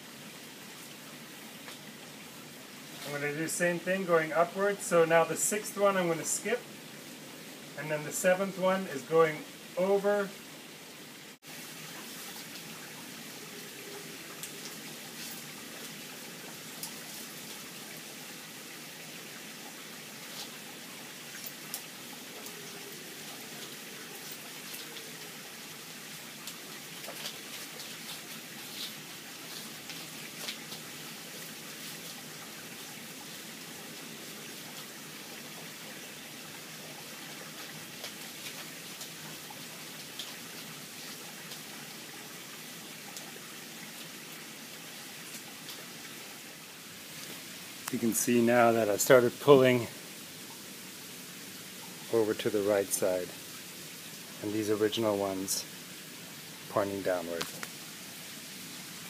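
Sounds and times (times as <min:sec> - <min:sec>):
rain falling: 0:00.0 - 0:59.0
raindrops ticking: 0:14.3 - 0:17.7, 0:20.3 - 0:34.0, 0:36.4 - 0:42.4, 0:47.2 - 0:50.7, 0:56.7 - 0:57.8.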